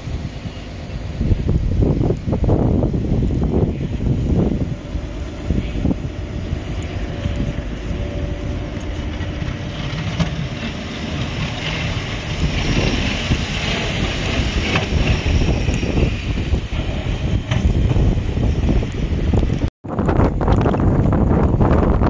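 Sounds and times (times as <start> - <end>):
wind buffeting microphone: 0.0 - 22.0
truck engine running: 3.0 - 19.6
plow blade pushing snow: 3.1 - 19.7.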